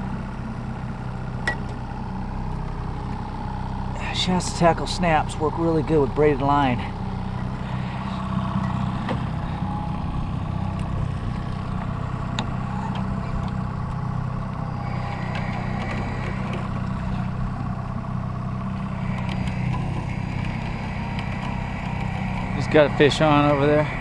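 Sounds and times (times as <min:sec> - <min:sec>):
outboard motor humming: 0:00.0 - 0:24.0.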